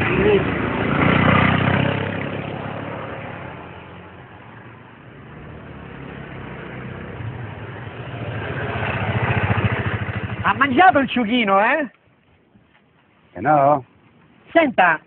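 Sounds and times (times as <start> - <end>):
motor scooter engine: 0.0 - 4.1, 5.2 - 11.4.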